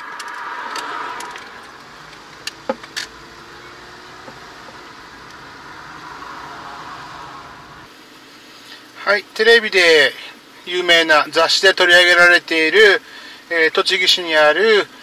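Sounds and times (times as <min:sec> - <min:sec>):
engine and road noise in cabin: 0:00.0 - 0:07.9.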